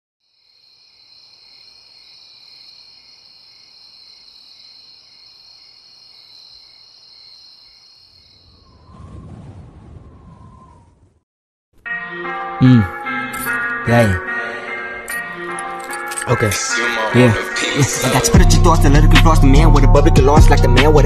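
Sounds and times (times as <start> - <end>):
crickets chirping: 0.2 - 9.0.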